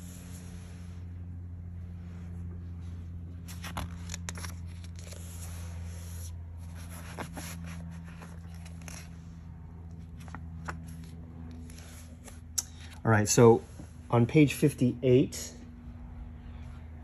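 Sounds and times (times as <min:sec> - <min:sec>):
low hum: 0:00.0 - 0:17.0
book page rustling: 0:03.4 - 0:09.3, 0:09.9 - 0:13.0.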